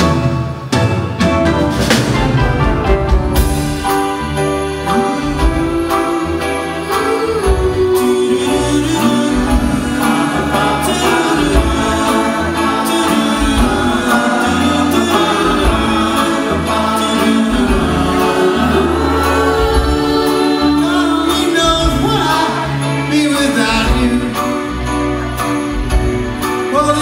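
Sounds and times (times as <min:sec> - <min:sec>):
voices singing in harmony: 0:04.9 - 0:25.7.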